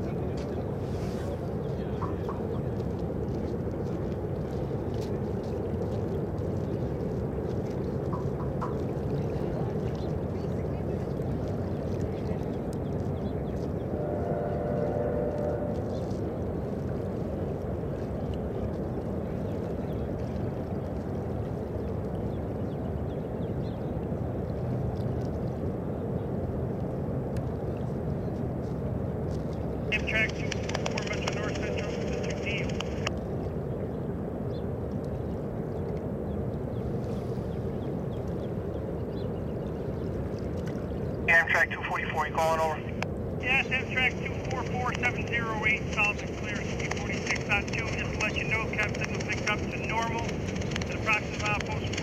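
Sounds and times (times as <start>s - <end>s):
distant freight train rumble: 13.6s - 17.9s, 41.3s - 52.0s.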